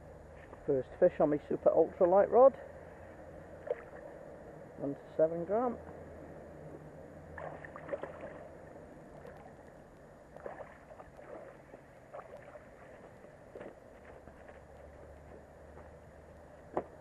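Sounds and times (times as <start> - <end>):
fish splashing and thrashing in water: 3.6 - 4.1, 7.3 - 8.6, 10.3 - 13.8.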